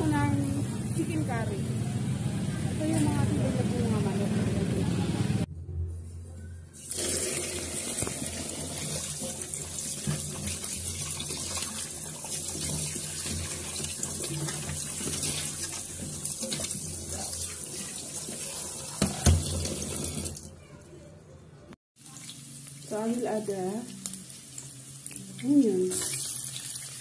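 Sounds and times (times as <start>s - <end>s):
tap water running into metal basin: 6.8s - 20.5s.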